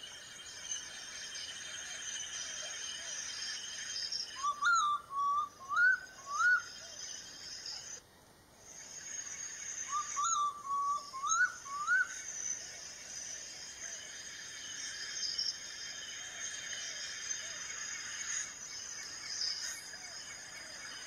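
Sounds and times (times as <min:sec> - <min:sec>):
high insect drone: 0:00.0 - 0:21.0
owl whistled calls: 0:04.4 - 0:07.0, 0:09.8 - 0:12.3.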